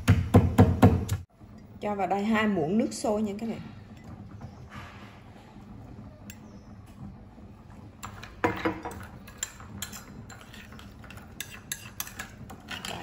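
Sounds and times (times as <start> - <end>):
spoon scraping ceramic bowl: 8.0 - 13.0.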